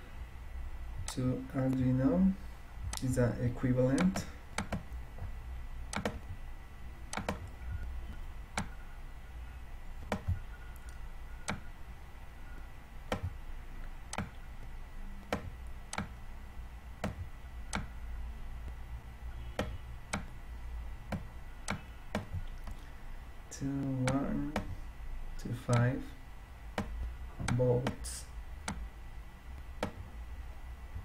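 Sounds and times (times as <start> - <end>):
sharp clicks: 3.9 - 5.0, 5.9 - 6.4, 7.1 - 8.8, 10.0 - 11.7, 12.6 - 16.2, 17.0 - 17.9, 19.4 - 20.4, 21.1 - 22.8, 25.7 - 25.9, 26.7 - 28.9, 29.6 - 30.1.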